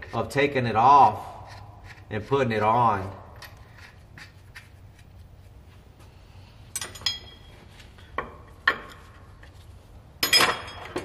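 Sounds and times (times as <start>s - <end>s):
metal bolts and tools clinking: 6.7s - 9.6s, 10.2s - 11.0s.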